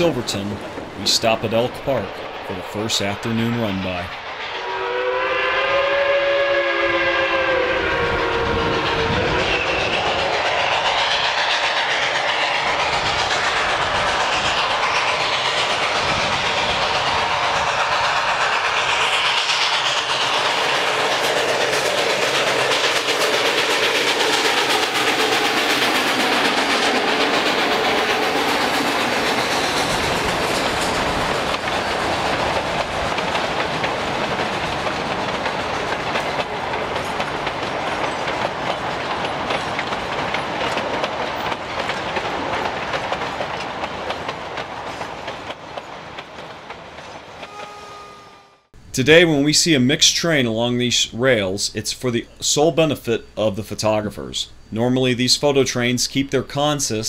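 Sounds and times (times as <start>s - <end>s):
train wheels clicking over rail joints: 5.5s - 48.1s.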